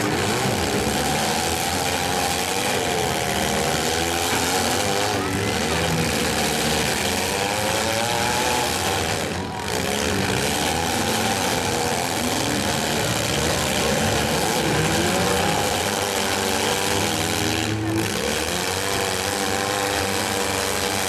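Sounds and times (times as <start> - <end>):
car engines revving: 0.0 - 21.0.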